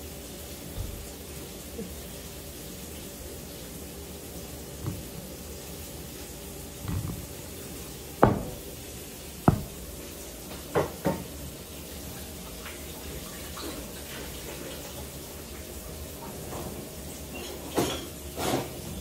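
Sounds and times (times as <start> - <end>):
kitchenware knocking and clattering: 4.8 - 5.3, 6.8 - 7.6, 8.2 - 8.8, 9.5 - 10.0.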